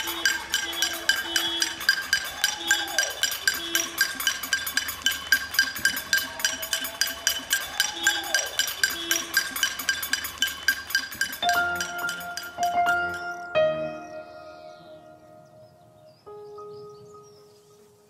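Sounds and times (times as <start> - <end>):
people clapping: 0.0 - 4.4, 5.2 - 10.0
banging metal pots and pans: 0.0 - 13.4.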